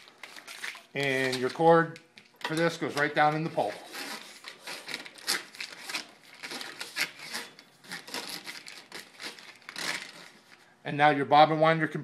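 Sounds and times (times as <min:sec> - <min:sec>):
cord rustling and clicking: 0:00.0 - 0:10.6.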